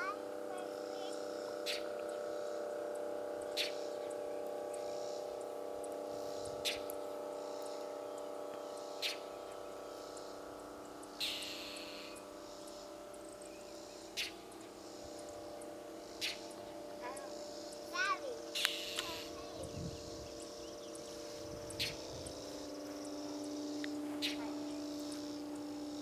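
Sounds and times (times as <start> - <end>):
bird chip calls: 0.0 - 2.2, 3.5 - 4.2, 6.6 - 7.0, 9.0 - 9.8, 11.2 - 12.7, 13.3 - 14.5, 16.2 - 22.0, 23.8 - 25.4
steady low hum: 0.0 - 26.0.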